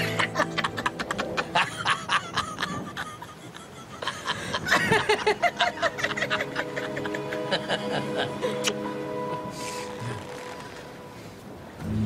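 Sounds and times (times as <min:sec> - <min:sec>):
man and woman laughing: 0:00.0 - 0:09.5.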